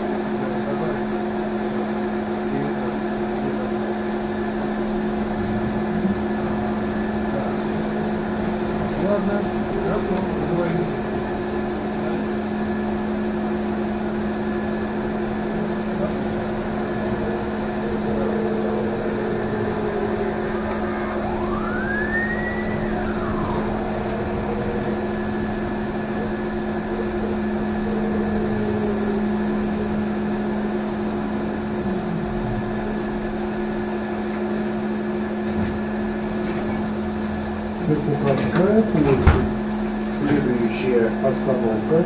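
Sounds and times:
road noise: 2.4 - 40.7
electrical hum: 2.6 - 34.6
motor whine: 3.4 - 38.0.

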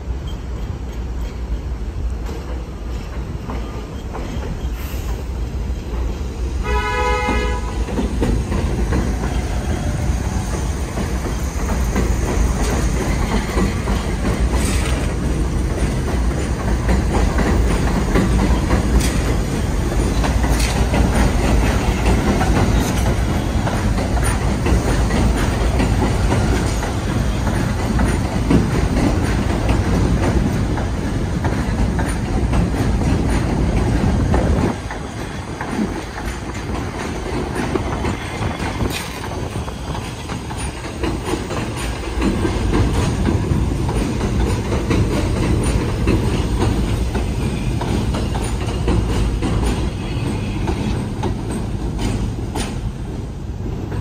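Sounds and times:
train wheels rumbling on rail: 0.0 - 54.0
subway train horn: 6.5 - 8.0.

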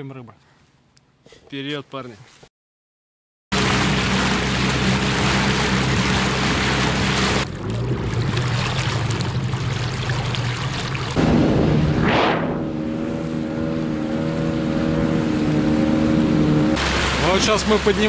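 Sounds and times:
outboard motor running: 3.5 - 12.0, 12.6 - 18.0
water rushing along hull: 3.5 - 18.0.

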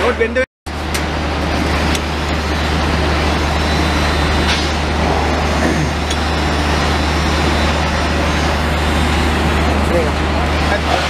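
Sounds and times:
machine humming and droning: 0.0 - 11.0.

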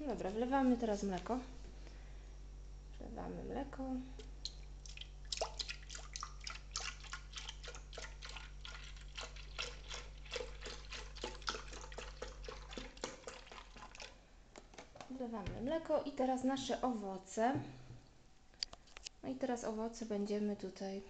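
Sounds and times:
milk pouring into jar: 4.8 - 14.2.

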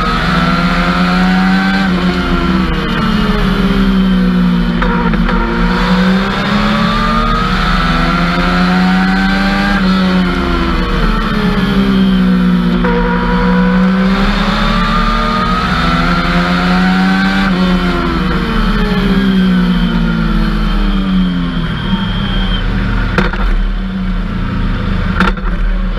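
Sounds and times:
race car engine accelerating: 0.0 - 25.9.

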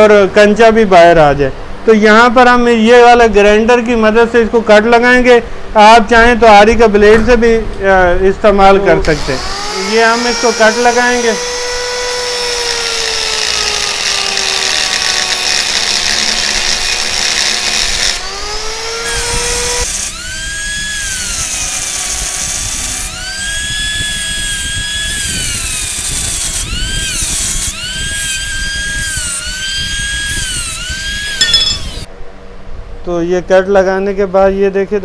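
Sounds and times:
angle grinder cutting metal: 9.1 - 32.1.

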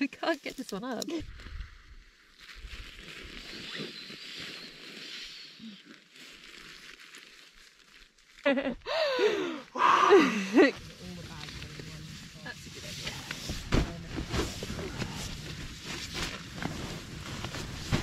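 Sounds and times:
fabric rustling: 10.7 - 18.0.

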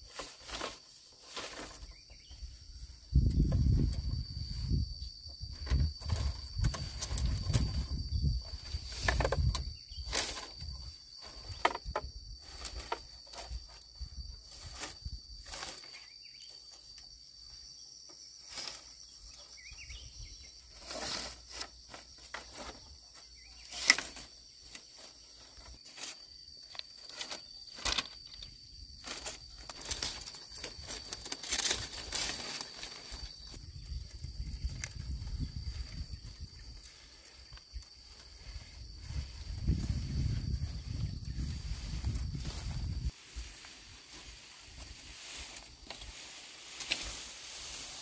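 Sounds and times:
bamboo poles knocking and clattering: 0.0 - 1.9, 5.5 - 13.9, 20.8 - 33.5, 44.8 - 47.4
high insect drone: 0.0 - 48.0
footsteps rustling in grass: 29.0 - 48.0.

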